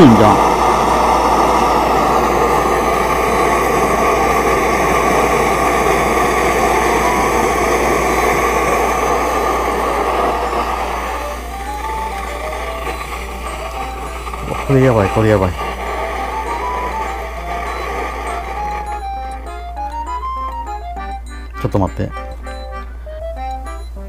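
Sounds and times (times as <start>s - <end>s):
alcohol stove roaring: 0.0s - 24.0s.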